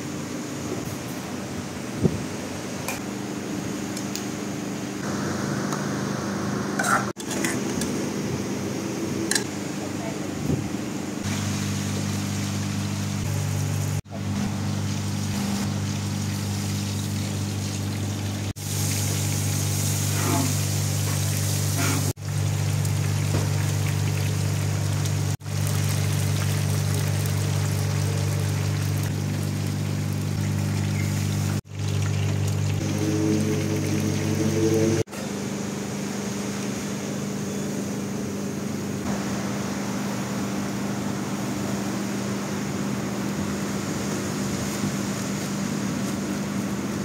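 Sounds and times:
steady low hum: 0:00.0 - 0:45.2
hot oil sizzling and bubbling: 0:11.0 - 0:37.2.

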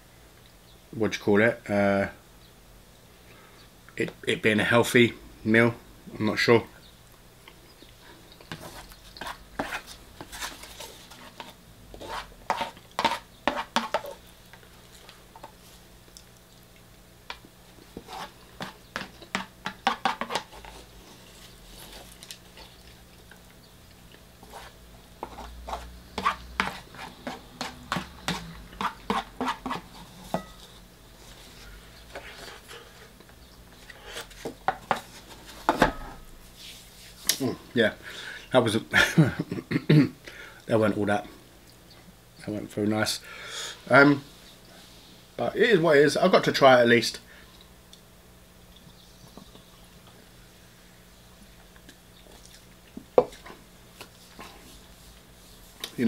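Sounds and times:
cutlery scraping plastic tray: 0:08.5 - 0:14.2, 0:18.0 - 0:20.8.

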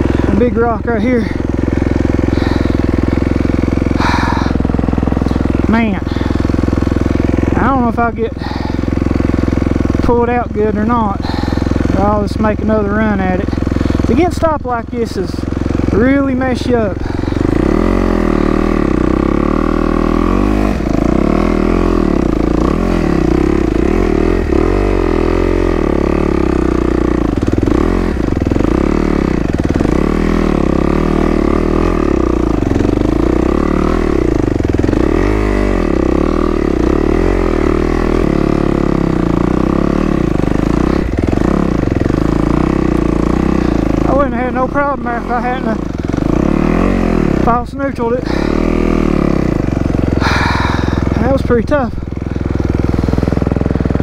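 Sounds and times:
dirt bike engine revving: 0:00.0 - 0:54.0.

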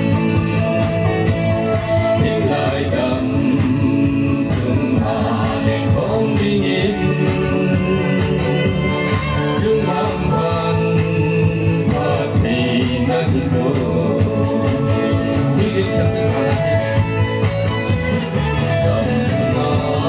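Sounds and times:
backing music: 0:00.0 - 0:20.0
man and woman singing: 0:02.0 - 0:16.9, 0:18.6 - 0:20.0.

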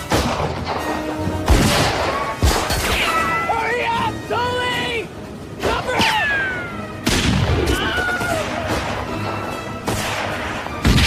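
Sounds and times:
sharp bangs: 0:00.0 - 0:03.3, 0:07.0 - 0:11.0
orchestral film music: 0:00.0 - 0:11.0.

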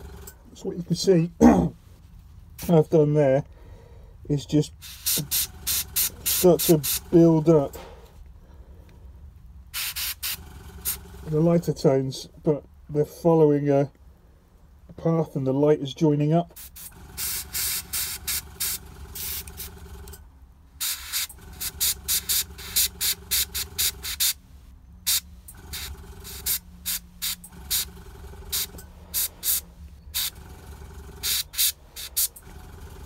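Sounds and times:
airbrush spraying in short bursts: 0:04.8 - 0:07.2, 0:09.7 - 0:11.0, 0:16.6 - 0:19.7, 0:20.8 - 0:24.4, 0:25.1 - 0:27.9, 0:28.5 - 0:30.3, 0:31.2 - 0:32.4.

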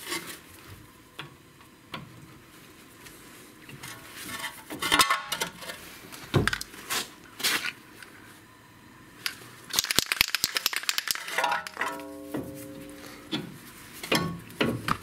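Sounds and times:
aerosol can mixing ball rattling: 0:09.7 - 0:11.8
metal parts clinking: 0:09.7 - 0:13.0.

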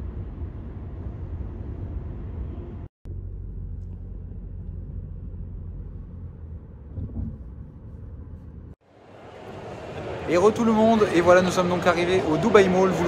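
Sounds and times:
car cabin road rumble: 0:00.0 - 0:08.8.

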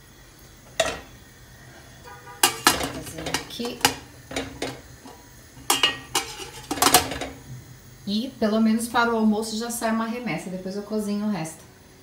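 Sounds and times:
metal pan lid clanking: 0:00.8 - 0:01.2, 0:02.4 - 0:07.4.

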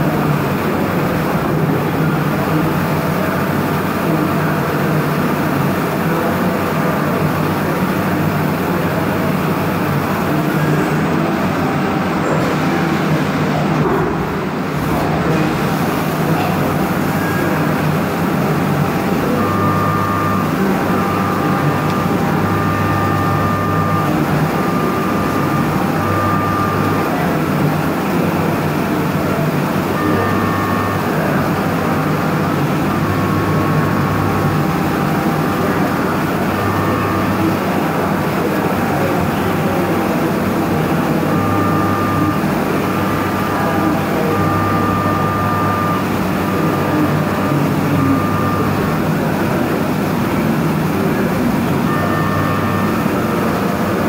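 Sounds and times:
milling machine cutting with coolant: 0:00.0 - 0:54.0
humming tone: 0:14.9 - 0:54.0.

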